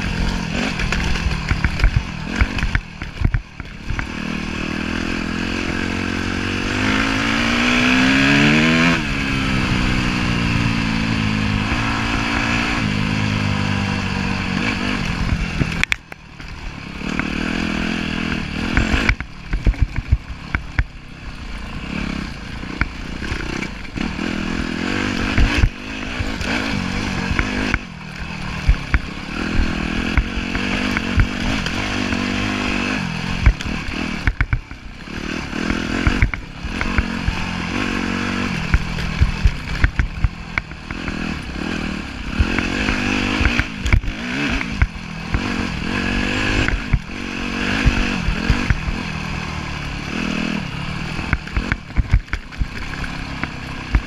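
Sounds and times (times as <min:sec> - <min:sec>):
bike knocks and rattles: 0:00.0 - 0:04.2, 0:18.6 - 0:21.0, 0:27.2 - 0:32.6, 0:33.3 - 0:34.9, 0:38.6 - 0:45.6, 0:51.2 - 0:54.0
motorcycle engine revving: 0:00.0 - 0:54.0.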